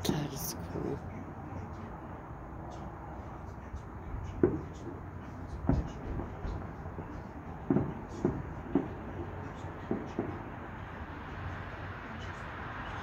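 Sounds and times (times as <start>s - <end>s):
distant fireworks booming: 4.1s - 11.0s.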